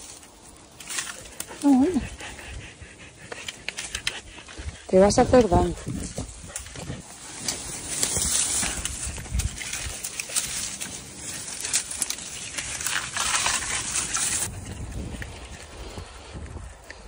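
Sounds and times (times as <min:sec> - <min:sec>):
dry grass crackling and rustling: 0:00.0 - 0:02.2, 0:03.4 - 0:17.0.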